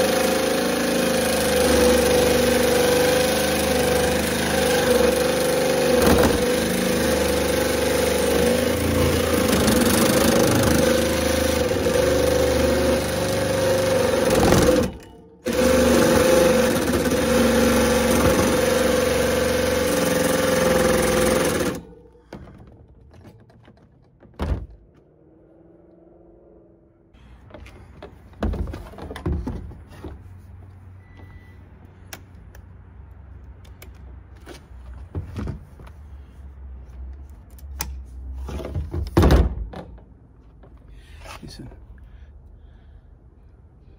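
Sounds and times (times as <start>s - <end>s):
jigsaw cutting steel wire: 0.0s - 22.2s.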